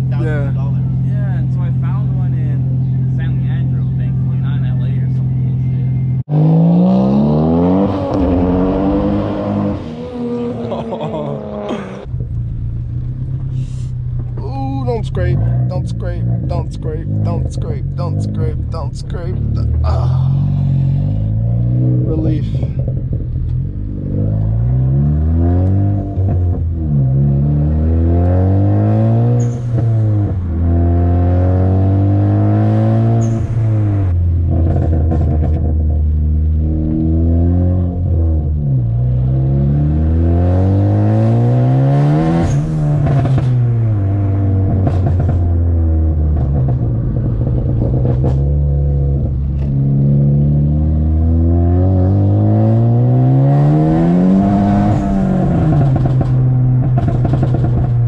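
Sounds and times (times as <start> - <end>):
car engine revving: 0.0 - 58.0
exhaust crackles and pops: 12.0 - 19.9, 34.4 - 37.0, 44.6 - 49.8, 54.9 - 58.0.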